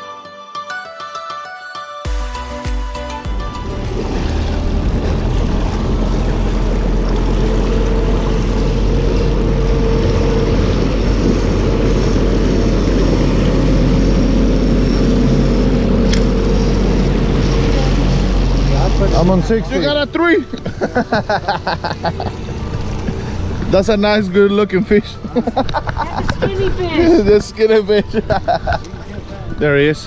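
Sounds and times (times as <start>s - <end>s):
outboard motor running: 3.3s - 29.5s
water rushing along hull: 3.4s - 24.5s.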